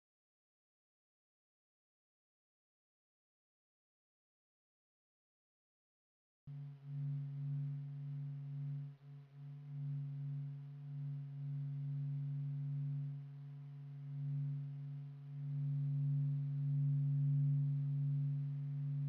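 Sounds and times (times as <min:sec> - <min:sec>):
low humming drone: 0:06.5 - 0:19.0.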